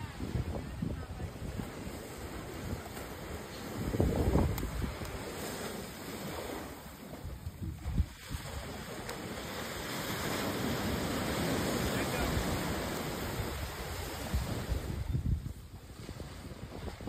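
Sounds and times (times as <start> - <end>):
ocean surf breaking: 0.0 - 17.0
wind buffeting microphone: 0.0 - 17.0.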